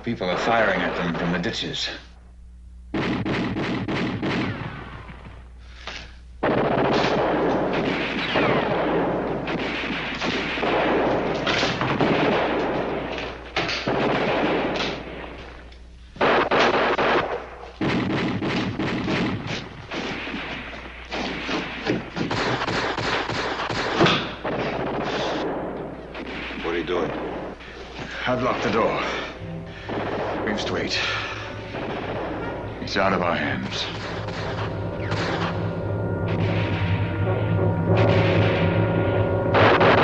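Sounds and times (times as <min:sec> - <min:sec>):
machine-gun and small-arms fire: 0:02.9 - 0:05.4, 0:06.4 - 0:15.6, 0:16.2 - 0:35.6, 0:39.6 - 0:40.0.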